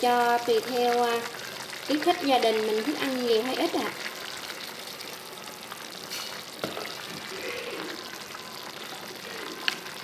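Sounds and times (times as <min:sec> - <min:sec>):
soup sizzling and bubbling: 0:00.0 - 0:10.0.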